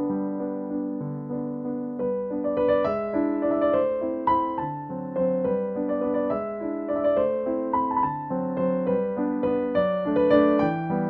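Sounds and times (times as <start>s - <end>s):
slow piano music: 0.0s - 11.0s.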